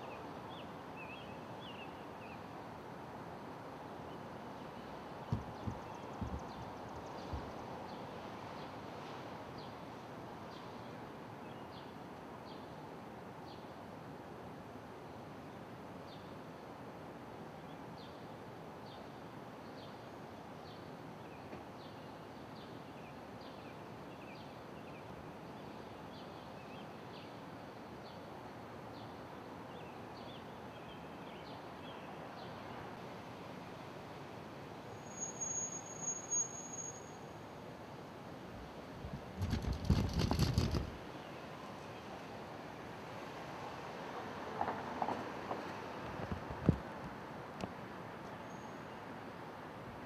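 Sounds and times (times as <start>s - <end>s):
distant traffic: 4.2s - 9.3s, 28.4s - 50.0s
bird chirping: 4.8s - 7.5s
high whistle: 35.0s - 37.2s.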